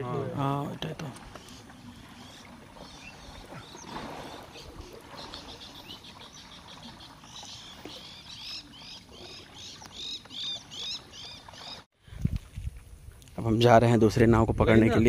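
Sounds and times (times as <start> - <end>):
bird singing: 1.2 - 11.9.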